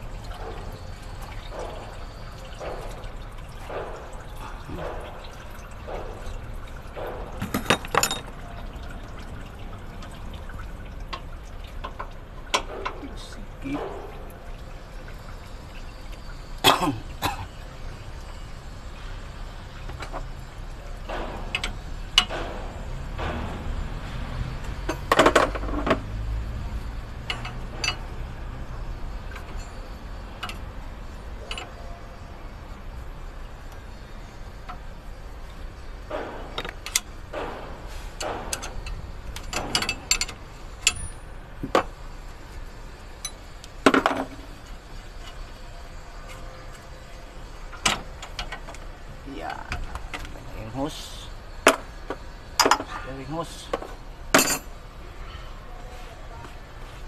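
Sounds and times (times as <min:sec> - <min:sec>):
spanners clinking on metal: 0:07.3 - 0:08.4, 0:27.2 - 0:28.2, 0:38.1 - 0:41.9, 0:49.4 - 0:54.8.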